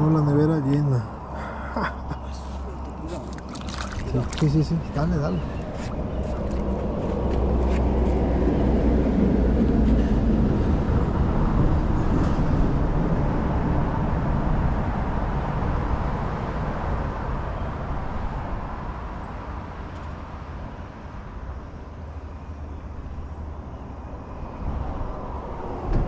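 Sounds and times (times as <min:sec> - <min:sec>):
boat motor rumbling: 0:00.0 - 0:08.4.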